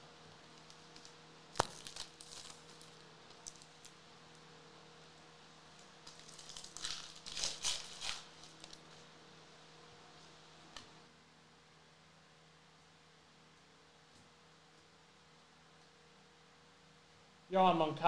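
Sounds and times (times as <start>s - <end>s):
foil wrapper tearing: 0.6s - 3.9s, 6.0s - 9.0s
wrapper crinkling: 0.6s - 3.9s, 6.0s - 9.0s.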